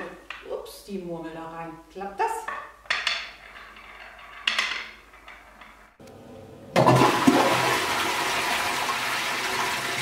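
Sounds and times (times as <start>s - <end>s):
marble clacking on wooden run: 2.4s - 6.0s
toilet flushing: 6.7s - 10.0s.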